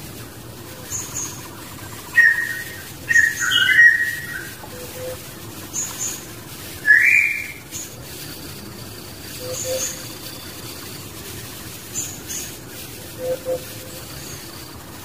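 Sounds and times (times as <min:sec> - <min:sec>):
birds whistling: 0:00.8 - 0:08.0, 0:09.2 - 0:11.1, 0:11.8 - 0:14.8
faint high bird chirps: 0:00.8 - 0:08.0, 0:09.2 - 0:11.0, 0:11.8 - 0:14.8.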